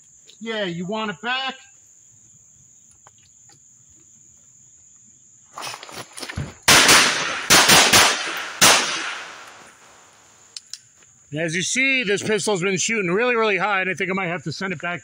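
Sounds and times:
pistol shots: 6.7s - 9.7s.

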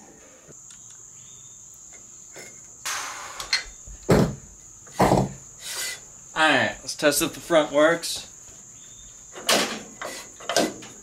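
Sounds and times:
crickets trilling: 0.1s - 11.0s
scrape: 5.6s - 6.0s.

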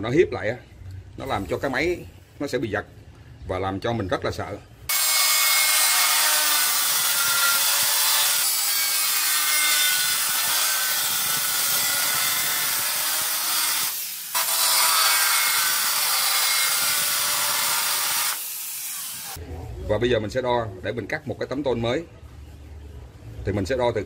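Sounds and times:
angle grinder cutting metal: 4.9s - 19.4s.

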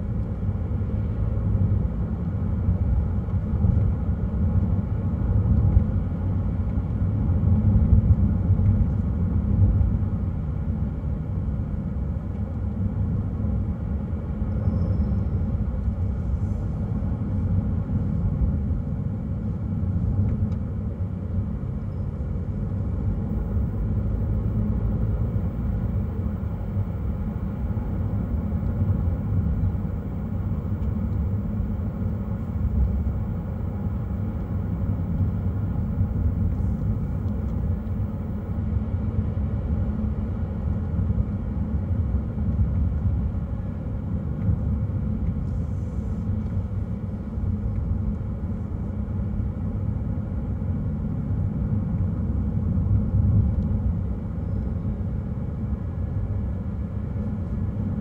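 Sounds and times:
car tyre and engine rumble: 0.0s - 58.0s.

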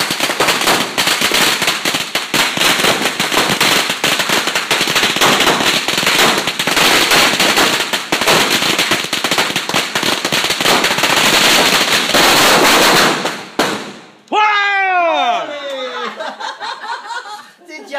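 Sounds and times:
firecrackers banging: 0.0s - 14.3s.

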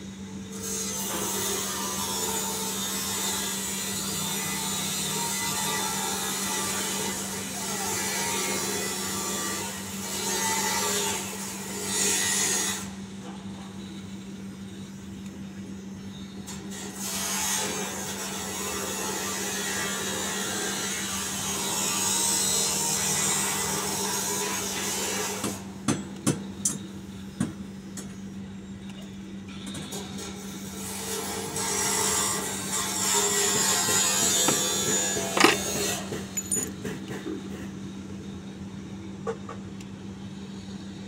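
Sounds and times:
rasping scraping like sawing: 30.8s - 36.6s
sharp metallic clank: 34.3s - 36.9s.

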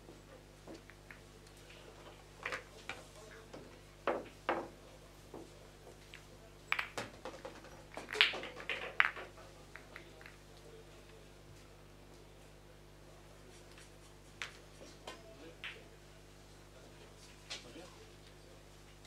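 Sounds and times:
pool balls clacking: 2.4s - 4.8s, 6.1s - 10.4s.

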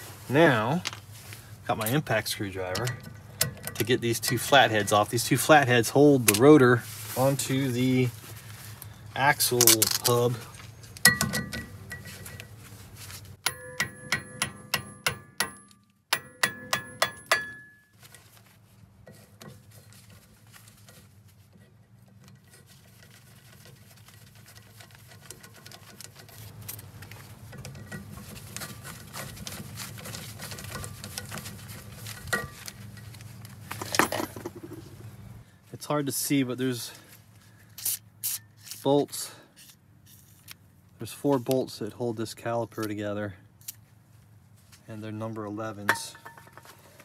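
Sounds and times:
hammer striking impact screwdriver: 13.4s - 17.8s.

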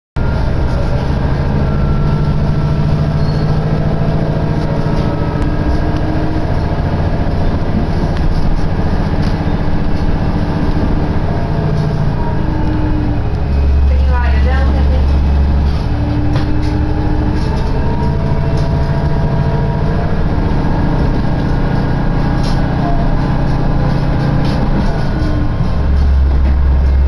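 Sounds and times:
engine hum tones: 0.2s - 27.0s
train engine and wheels rumble: 0.2s - 27.0s.

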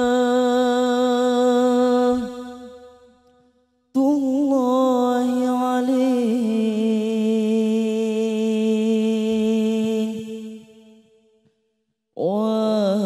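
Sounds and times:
man singing unaccompanied: 0.0s - 2.6s, 4.0s - 10.5s, 12.2s - 13.0s.

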